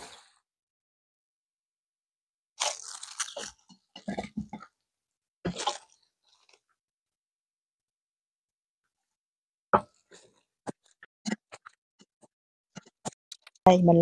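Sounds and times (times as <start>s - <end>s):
wet crunching of vegetables: 2.6s - 4.6s, 5.5s - 6.6s.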